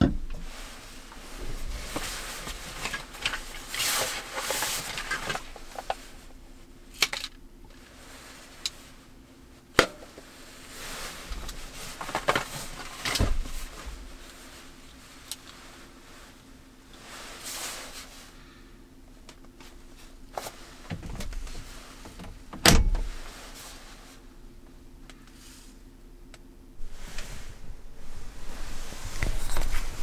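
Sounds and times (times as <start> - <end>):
fabric rustling: 0.4 - 6.3, 10.2 - 18.6, 26.8 - 30.0.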